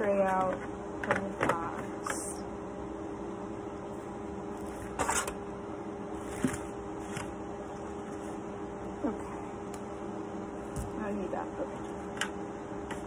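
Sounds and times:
plastic tray scraping cardboard: 4.6s - 5.4s.

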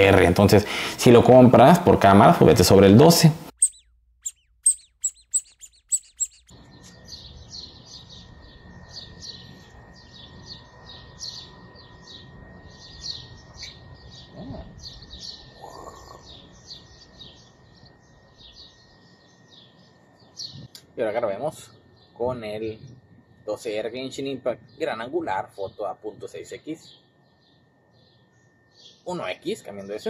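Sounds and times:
small birds chirping: 0.0s - 30.0s
outdoor hiss: 0.1s - 1.9s.

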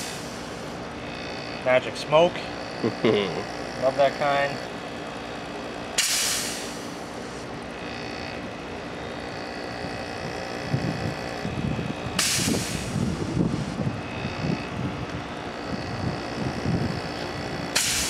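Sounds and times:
compressed air hissing: 0.0s - 1.1s, 5.9s - 7.5s, 11.2s - 13.9s, 16.6s - 18.0s
compressor drone: 0.0s - 18.0s.

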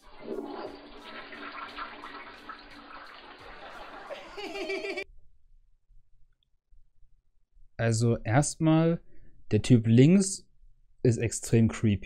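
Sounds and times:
toilet flushing: 0.0s - 5.0s
water running into basin: 0.0s - 5.0s
burst of laughter: 4.1s - 5.0s.

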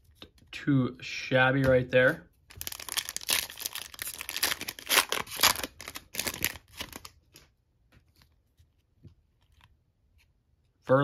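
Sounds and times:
foil wrapper crinkling and tearing: 2.5s - 7.2s.

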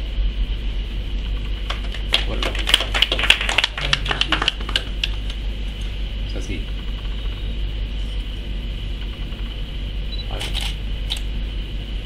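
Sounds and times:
steady low hum: 0.0s - 12.0s
audience clapping: 1.6s - 5.4s.

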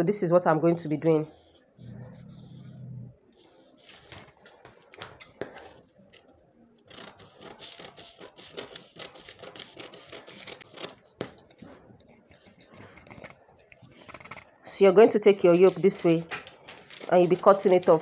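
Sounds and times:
paper rustling: 3.4s - 6.3s, 6.9s - 13.4s, 15.5s - 18.0s
scissors snipping paper: 4.0s - 11.7s.

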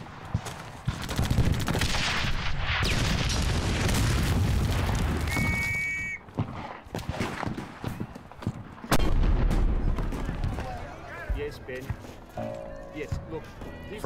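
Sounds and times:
gunshots: 0.4s - 5.6s
high whistling tone: 5.3s - 6.2s.

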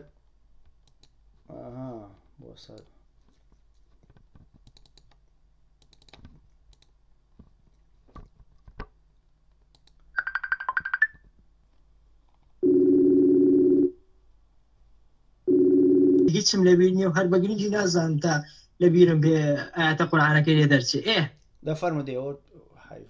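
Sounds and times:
faint clicks: 0.2s - 1.2s, 2.2s - 7.0s, 9.5s - 10.1s
outgoing call ringing tone: 12.6s - 14.0s, 15.5s - 16.4s.

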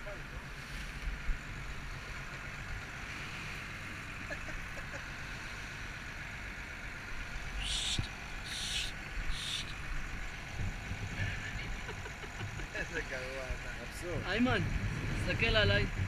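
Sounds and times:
boat engine rumbling: 0.0s - 16.0s
hull and water noise: 0.0s - 16.0s
short hisses: 7.6s - 9.8s.

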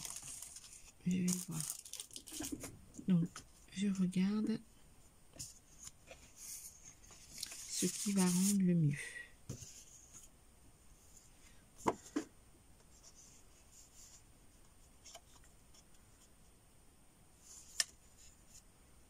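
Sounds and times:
paper rustling: 0.0s - 2.7s, 5.4s - 8.6s.

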